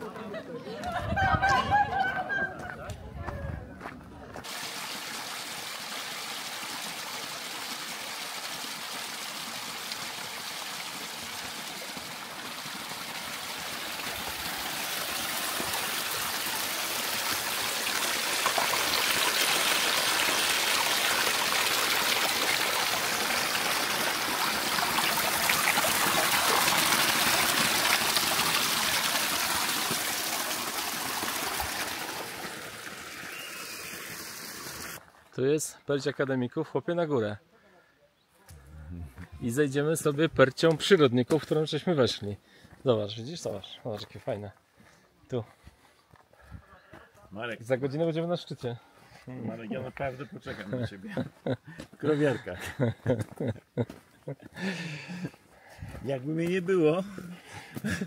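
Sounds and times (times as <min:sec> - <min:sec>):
mountain stream running: 0:03.8 - 0:35.1, 0:39.2 - 0:46.3.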